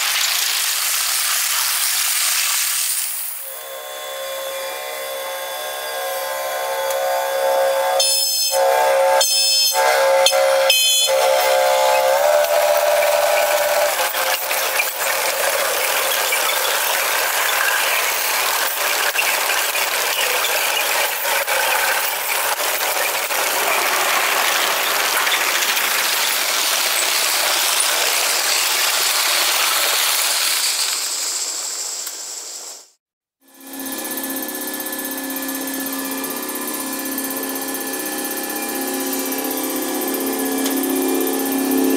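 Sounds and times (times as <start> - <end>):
locomotive horn: 3.5 - 16.1.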